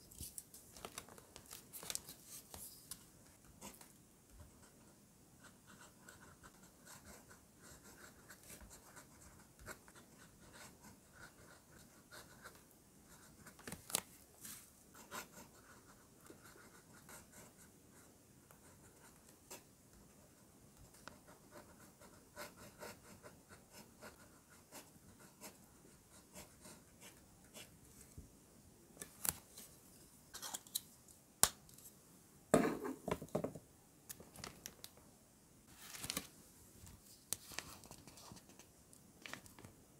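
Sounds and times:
pen scratching on paper: 5.4s - 13.5s, 14.9s - 19.6s, 20.9s - 27.7s.

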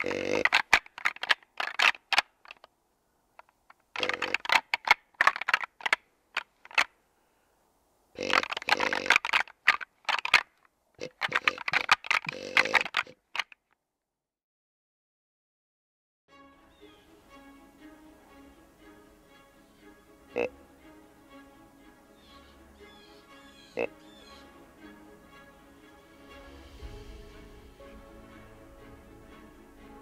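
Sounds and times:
rattling antlers clattering: 0.0s - 2.7s, 3.4s - 6.9s, 8.2s - 13.6s.

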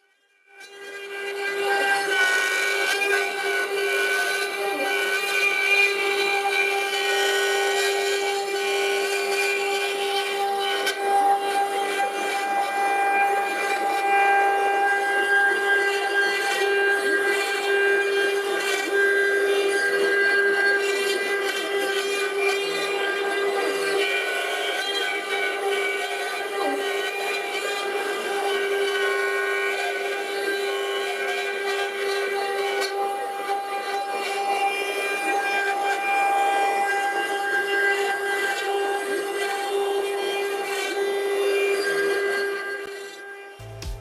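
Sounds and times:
router spindle whining: 0.0s - 44.0s
bit cutting wood: 0.6s - 44.0s.

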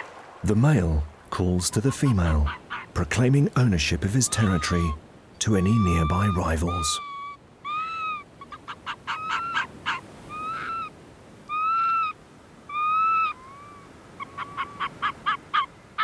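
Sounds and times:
fox yelping: 1.8s - 3.0s, 4.2s - 5.0s, 5.7s - 10.9s, 11.5s - 16.0s.

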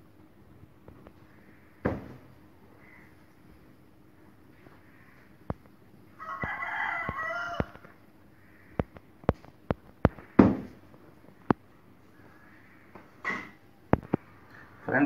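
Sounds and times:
rooster crowing: 6.1s - 8.8s.

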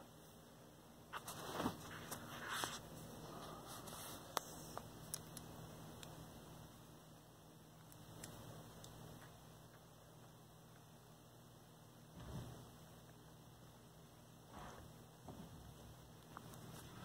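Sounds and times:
phone rustling and scuffing: 1.1s - 2.9s.

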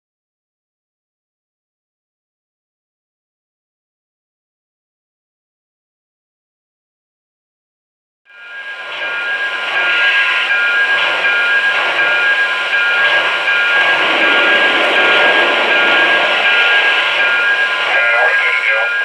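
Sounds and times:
high whine: 8.3s - 19.0s.

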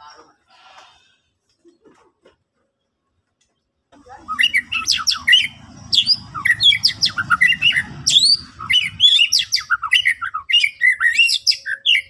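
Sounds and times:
low rumble: 4.2s - 9.5s
bird singing whistled song: 4.2s - 12.0s.

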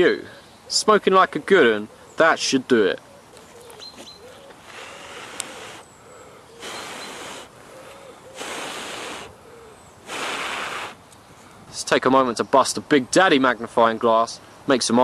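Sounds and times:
breath puffs blowing: 4.6s - 11.1s.

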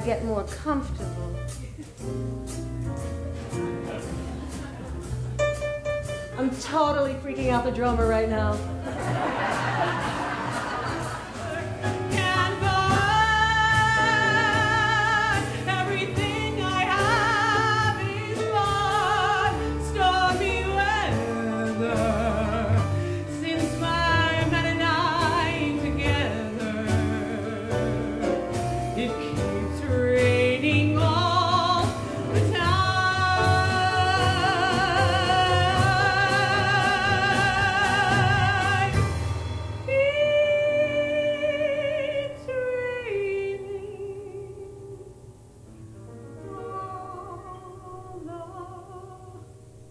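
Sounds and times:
live band playing: 0.0s - 41.6s
woman singing with vibrato: 11.4s - 39.2s, 39.9s - 45.3s, 46.4s - 49.6s.

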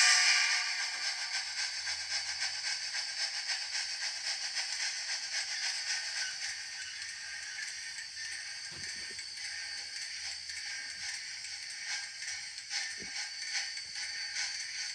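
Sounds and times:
model steam locomotive rattling hiss: 0.0s - 14.9s.

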